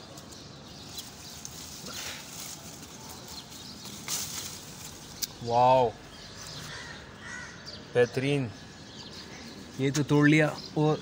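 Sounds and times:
leaves and twigs rustling: 0:00.0 - 0:07.4.

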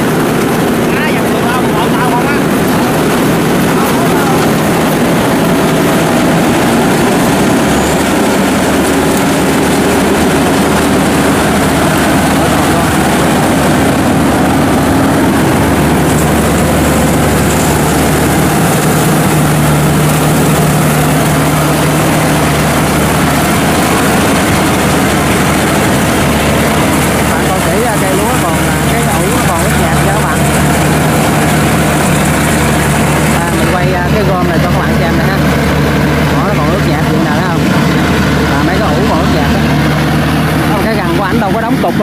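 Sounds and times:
harvester engine and threshing drone: 0:00.0 - 0:42.0.

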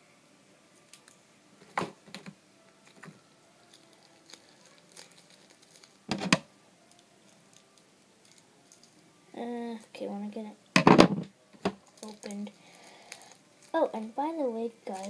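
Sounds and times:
plastic packet crinkling: 0:02.9 - 0:06.1, 0:06.9 - 0:09.0, 0:11.8 - 0:14.2.

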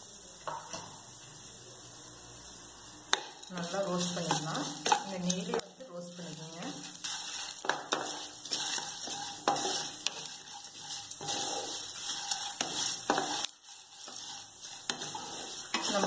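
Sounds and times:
spices sizzling in oil: 0:00.0 - 0:16.0
spatula scraping pan: 0:03.2 - 0:16.0.

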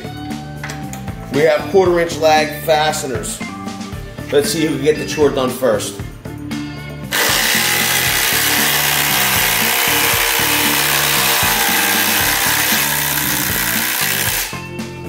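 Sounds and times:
impact drivers hammering: 0:07.1 - 0:14.6.

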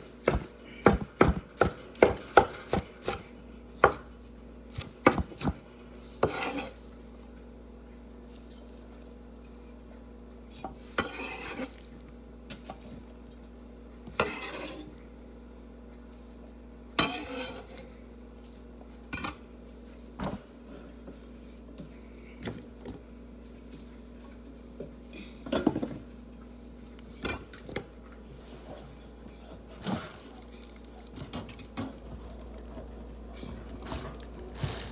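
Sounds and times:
faint steady hum: 0:00.0 - 0:34.9
knife scraping on cutting board: 0:06.2 - 0:06.8, 0:10.9 - 0:11.8, 0:14.2 - 0:14.9, 0:17.0 - 0:17.9.

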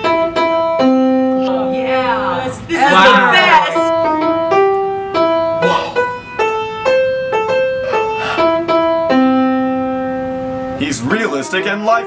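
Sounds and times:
piano melody: 0:00.0 - 0:12.0.

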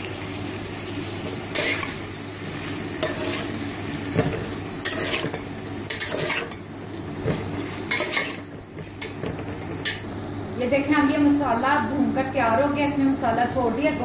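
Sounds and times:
food sizzling in hot oil: 0:00.0 - 0:11.9
metal spatula scraping pot: 0:01.5 - 0:02.0, 0:04.8 - 0:06.6, 0:07.9 - 0:10.0.

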